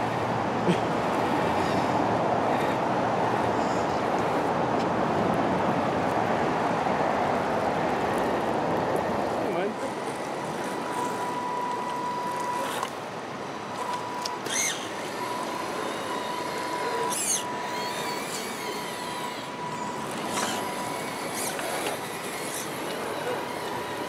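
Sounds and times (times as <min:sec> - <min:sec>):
small electric motor whining: 0:09.8 - 0:24.0.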